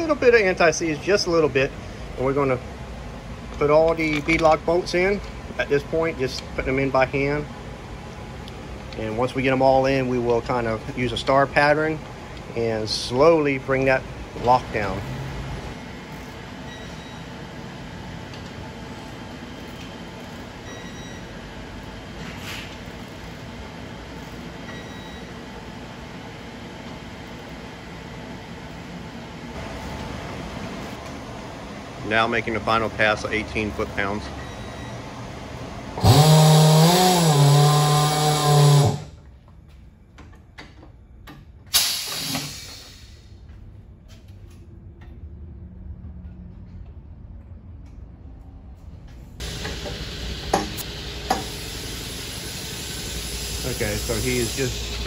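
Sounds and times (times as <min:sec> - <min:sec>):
background hum and hiss: 0:00.0 - 0:55.0
burst of air hiss: 0:41.7 - 0:43.3, 0:49.4 - 0:55.0.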